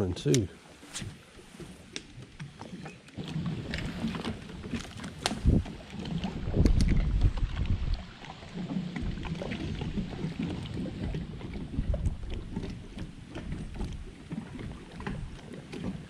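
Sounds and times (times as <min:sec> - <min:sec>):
water lapping against boat hull: 0:00.0 - 0:16.0
wind rumbling on microphone: 0:03.2 - 0:16.0.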